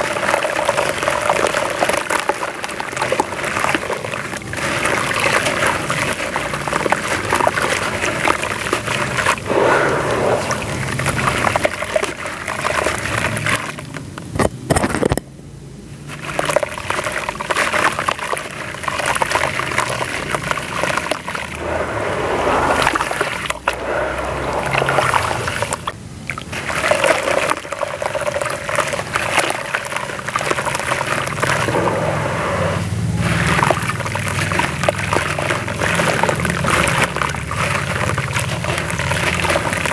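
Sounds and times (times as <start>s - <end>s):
crumble mix crumbled into water: 0.0s - 9.6s, 10.2s - 15.3s, 16.1s - 21.7s, 22.6s - 31.9s, 32.9s - 39.9s.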